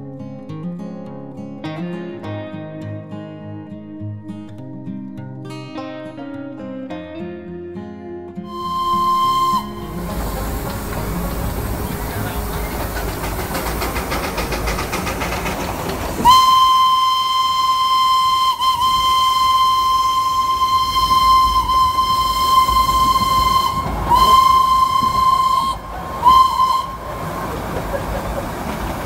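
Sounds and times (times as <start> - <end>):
steam locomotive whistle: 8.4 - 28.5
train running rumble and hiss: 8.5 - 29.0.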